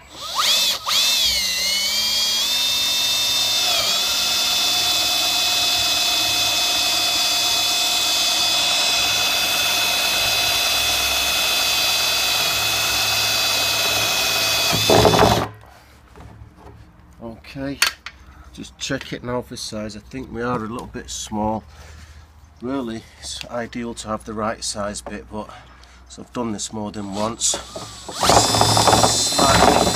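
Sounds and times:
cordless drill boring plastic: 0.0s - 15.5s, 27.1s - 29.9s.

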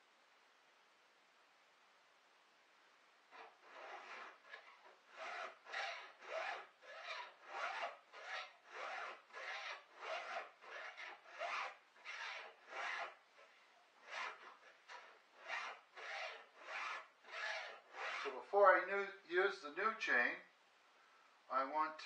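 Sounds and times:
hand file rasping on saw chain: 3.3s - 18.4s.

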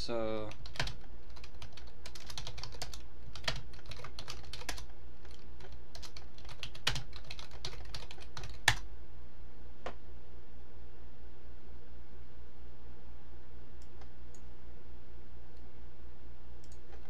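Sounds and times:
steady low hum: 0.0s - 17.0s
typing on computer keyboard: 0.5s - 8.8s.

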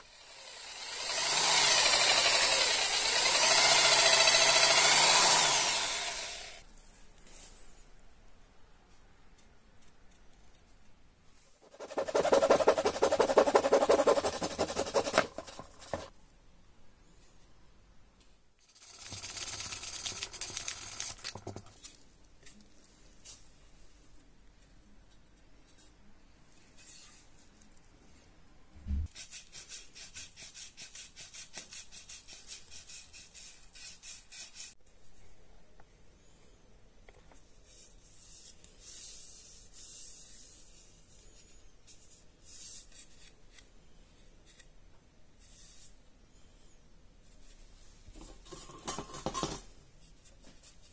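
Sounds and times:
handsaw cutting wood: 0.0s - 6.6s, 11.6s - 16.1s
metal file rasping in wood: 11.7s - 16.1s.

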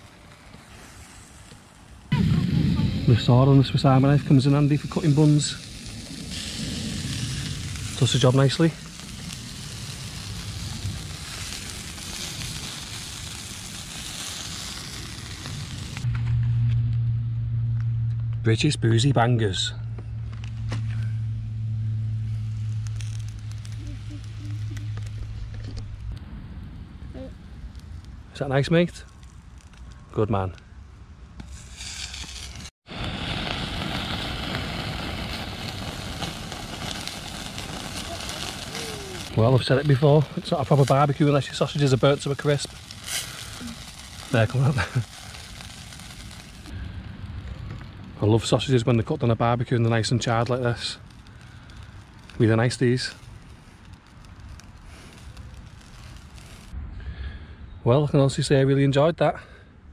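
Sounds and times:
burgers sizzling on a grill: 0.0s - 16.0s, 22.0s - 25.6s, 31.5s - 56.7s.

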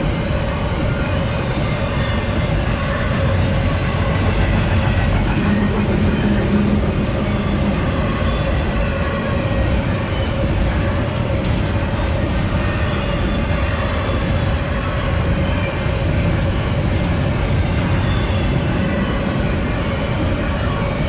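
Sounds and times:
freight train wheels rumbling: 0.0s - 21.0s.

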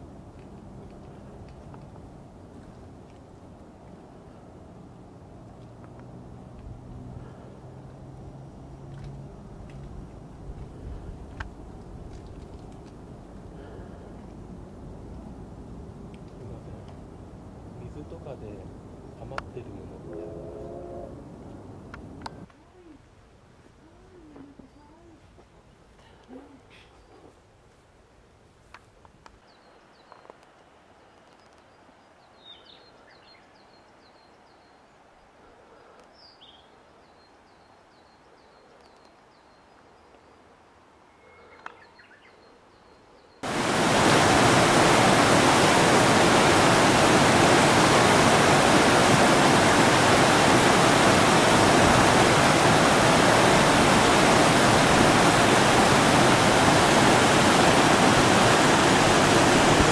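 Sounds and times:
faint chirping: 41.0s - 43.4s
stream rushing over rocks: 43.4s - 59.9s.

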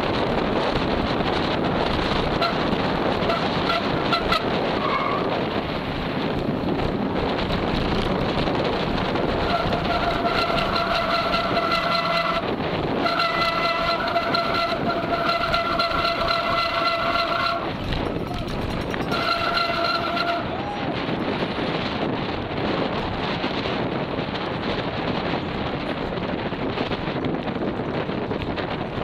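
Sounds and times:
wind rush on microphone: 0.0s - 29.0s
bike disc brakes squealing: 9.4s - 12.4s.

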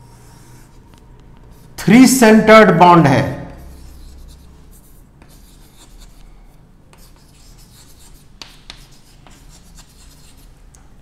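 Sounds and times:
chalk scratching on blackboard: 0.0s - 1.8s, 3.5s - 10.7s
chalk tapping on board: 3.6s - 6.3s, 6.9s - 10.6s.

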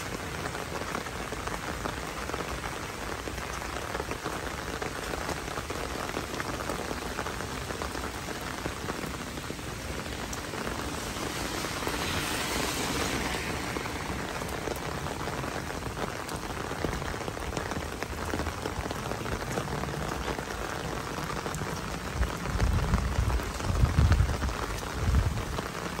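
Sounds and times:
rain on pavement and foliage: 0.0s - 26.0s
low rumbles on microphone: 21.6s - 25.6s.

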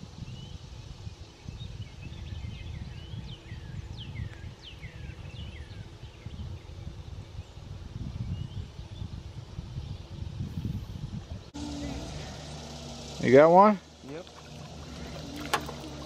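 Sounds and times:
birds chirping: 0.2s - 16.0s
low rumble: 10.2s - 16.0s.

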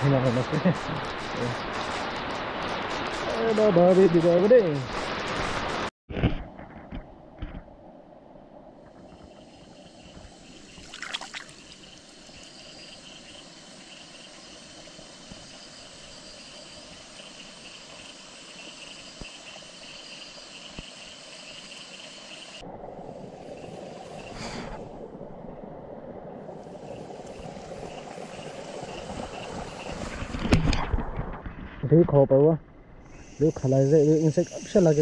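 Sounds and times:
steady rain falling on water: 0.0s - 5.9s, 26.0s - 30.5s.

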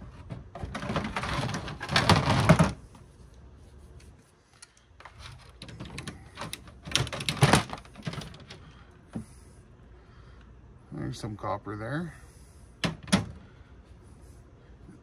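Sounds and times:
pliers scraping and creaking: 3.3s - 9.2s.

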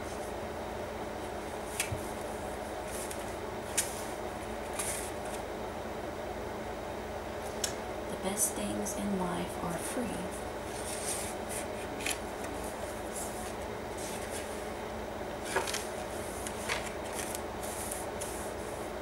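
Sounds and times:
steady low hum: 0.0s - 19.0s
paper rustling: 2.8s - 5.4s, 10.7s - 14.6s, 15.4s - 18.8s.

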